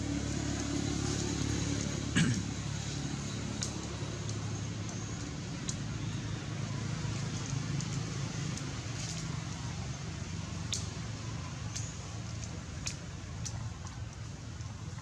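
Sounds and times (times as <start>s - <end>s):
faint clicks: 10.7s - 11.0s.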